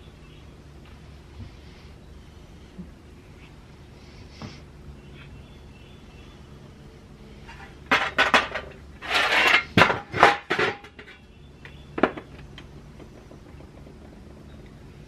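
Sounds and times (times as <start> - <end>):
metal scraping: 7.4 - 11.2.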